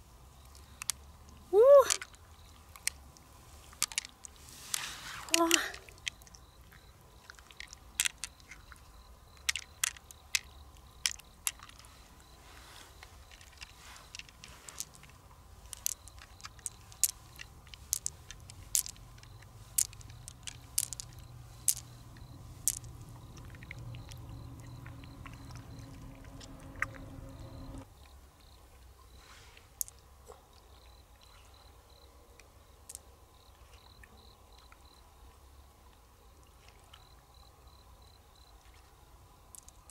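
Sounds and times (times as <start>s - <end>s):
pearls clicking together: 0.4s - 12.3s, 12.9s - 27.9s, 29.8s - 30.0s, 32.8s - 33.0s, 39.5s - 39.9s.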